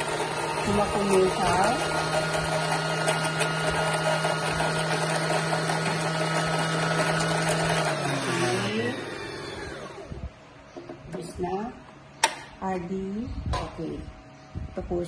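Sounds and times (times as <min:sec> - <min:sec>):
sewing machine motor running: 0:00.0 - 0:10.1.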